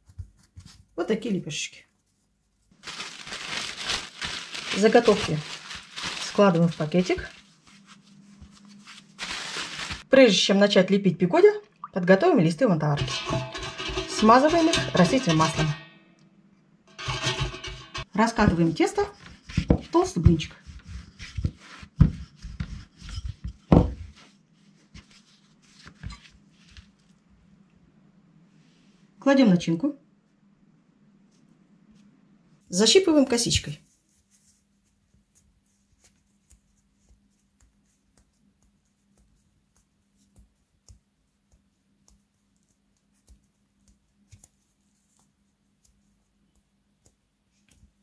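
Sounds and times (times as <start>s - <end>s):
dough handling noises: 0.0s - 10.1s, 16.9s - 27.2s, 33.1s - 48.0s
small clicks of fingers pinching dough: 35.2s - 48.0s.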